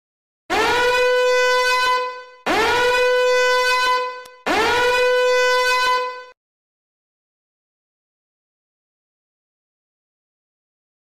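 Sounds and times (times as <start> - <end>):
buzzy warning alarm blasts: 0.5 - 6.4.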